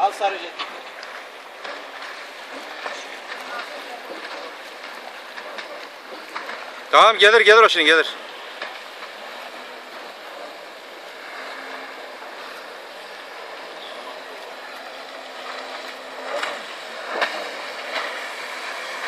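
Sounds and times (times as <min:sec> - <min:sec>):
wind and sea noise: 0:00.0 - 0:19.0
jet ski engine running: 0:07.8 - 0:19.0.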